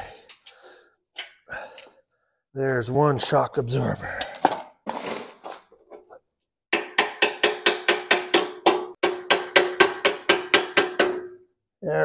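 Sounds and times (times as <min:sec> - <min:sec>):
hammer striking metal bolt: 0:06.7 - 0:11.4.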